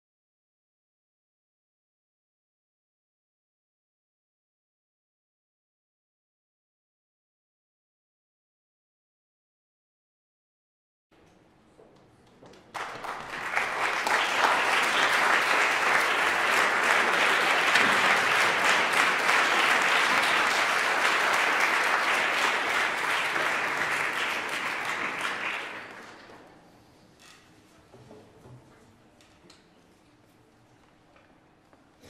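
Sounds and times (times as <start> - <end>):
audience applauding: 12.5 - 26.5.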